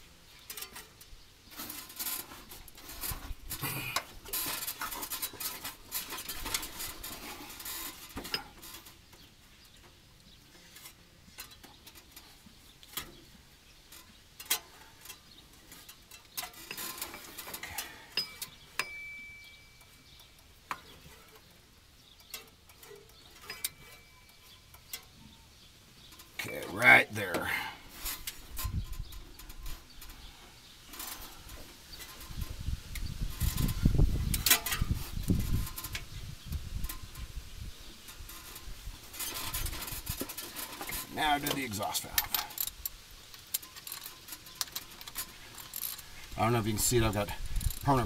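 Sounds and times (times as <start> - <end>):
metal tools clinking: 13.9 - 21.5, 22.1 - 25.1, 38.1 - 48.0
ratchet wrench clicking: 47.5 - 47.9.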